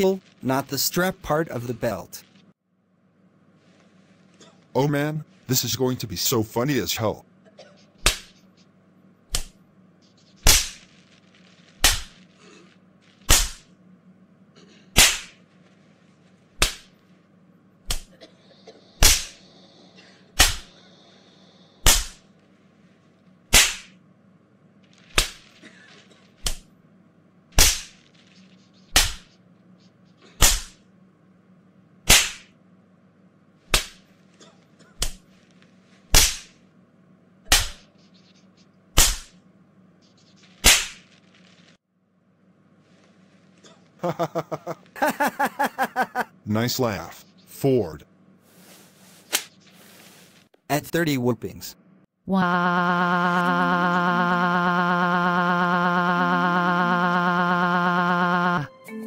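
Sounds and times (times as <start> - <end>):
whip cracks: 8.0 - 8.4, 9.3 - 9.6, 10.4 - 10.8, 11.8 - 12.2, 13.3 - 13.7, 15.0 - 15.4, 16.6 - 16.9, 19.0 - 19.4, 20.4 - 20.7, 21.8 - 22.2, 23.5 - 24.0, 25.1 - 25.5, 27.6 - 28.0, 28.9 - 29.3, 30.4 - 30.8, 32.1 - 32.5, 33.7 - 34.0, 36.1 - 36.6, 37.5 - 37.9, 39.0 - 39.4, 40.6 - 41.1, 49.3 - 49.6.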